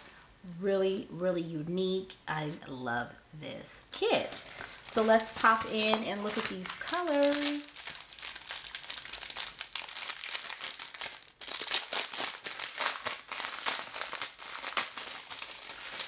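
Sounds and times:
plastic packaging crinkling: 0:04.0 - 0:16.0.

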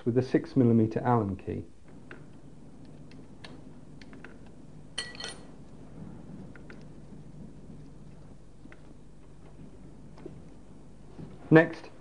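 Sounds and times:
low steady hum: 0:00.0 - 0:12.0
metallic clink: 0:05.0 - 0:05.5.

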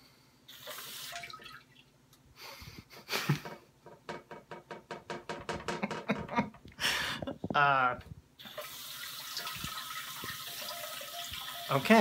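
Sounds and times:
water dripping into toilet bowl: 0:00.7 - 0:01.9, 0:08.4 - 0:12.0
bidet water hiss: 0:08.4 - 0:11.9.

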